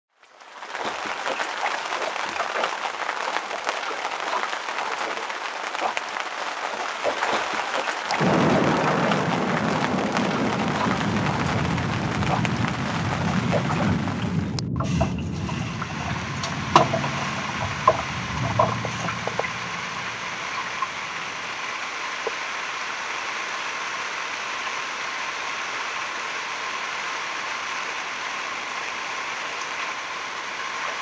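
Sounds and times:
heavy rain on wooden boat and canvas: 0.1 - 31.0
deep low rumble: 8.3 - 21.7.

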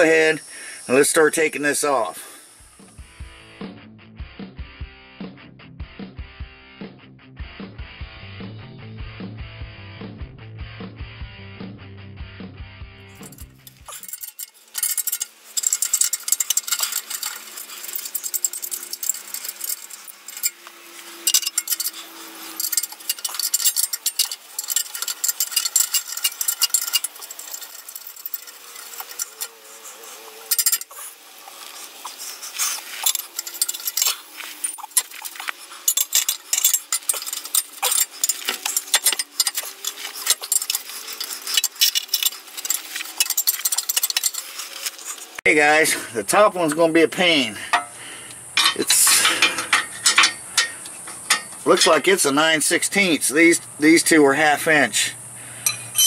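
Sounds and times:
metal clinking on metal: 13.1 - 45.4, 46.4 - 52.9, 55.6 - 56.0
ratcheting wrench clicking: 13.1 - 45.4, 47.7 - 52.2.

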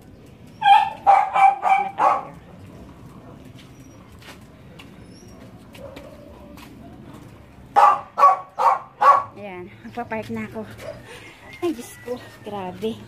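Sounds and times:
dog barking: 0.6 - 2.4, 7.7 - 9.4.

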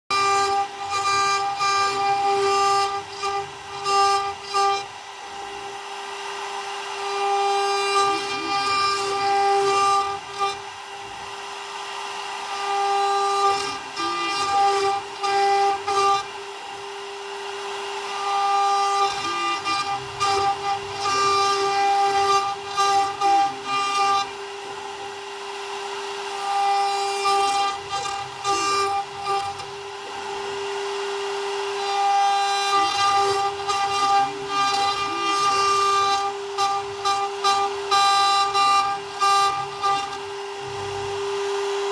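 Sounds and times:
bit cutting wood: 0.1 - 41.4
router spindle whining: 0.1 - 41.9.

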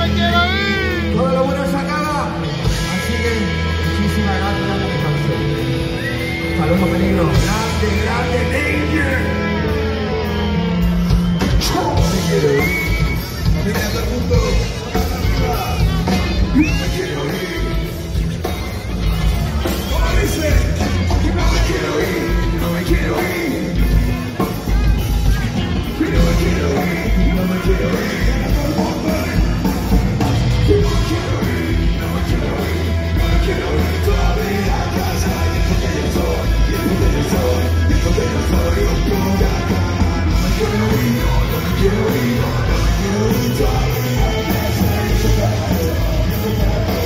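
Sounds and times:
live rock band playing: 0.0 - 47.0
person singing: 11.4 - 47.0.

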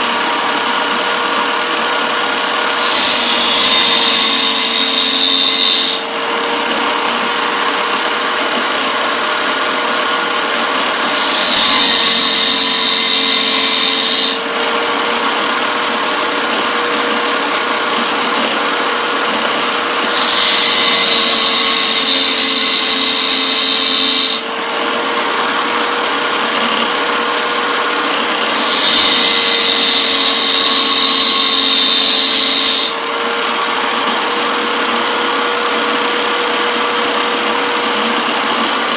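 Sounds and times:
tile saw motor hum: 0.0 - 38.9
high-pitched grinding of saw blade teeth: 0.7 - 24.6, 25.2 - 38.9.

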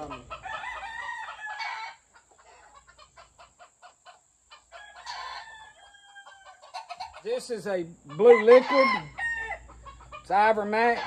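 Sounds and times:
rooster crowing: 0.3 - 2.6, 4.7 - 7.0, 8.2 - 9.7.

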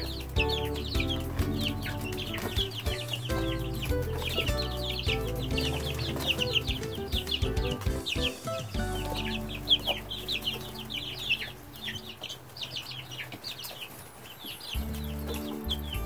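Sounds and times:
chicks peeping: 0.0 - 16.0.

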